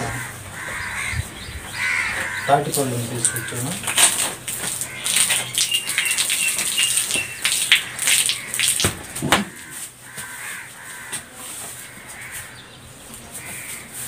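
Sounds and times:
crows cawing: 0:00.0 - 0:12.7, 0:13.3 - 0:14.0
fruit rustling and scraping: 0:09.6 - 0:14.0.

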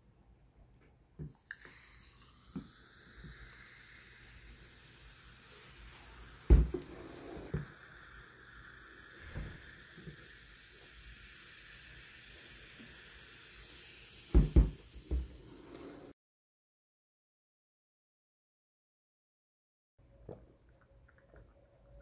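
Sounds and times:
cola pouring and fizzing over ice: 0:01.2 - 0:16.1
loud thump: 0:06.5 - 0:06.8.

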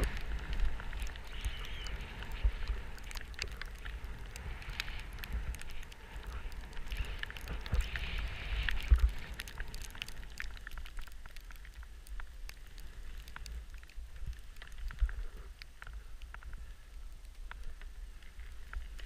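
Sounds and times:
skis sliding over snow: 0:00.0 - 0:11.3
snow crackling: 0:00.0 - 0:19.0
wind rumble on microphone: 0:00.0 - 0:19.0.

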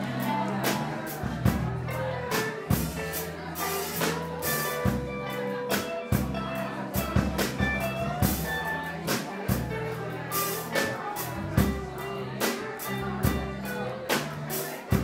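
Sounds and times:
bass guitar: 0:00.0 - 0:15.0
drum kit with cymbal hits: 0:00.0 - 0:15.0.

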